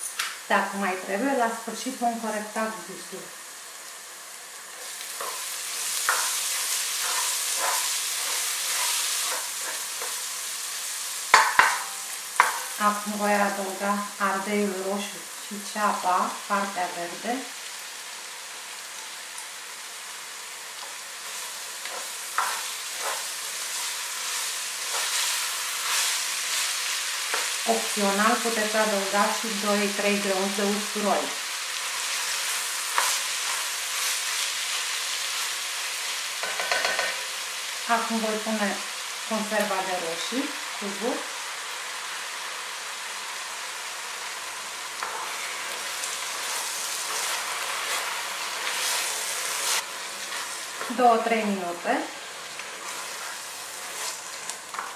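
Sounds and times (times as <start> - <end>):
vegetables sizzling in oil: 0.0 - 54.9
spatula scraping pot: 4.8 - 10.2, 21.8 - 26.6, 45.0 - 51.0, 52.6 - 54.9.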